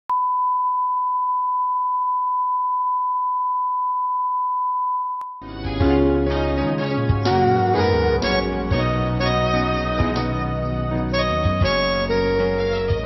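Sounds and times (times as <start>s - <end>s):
music: 5.4s - 13.0s.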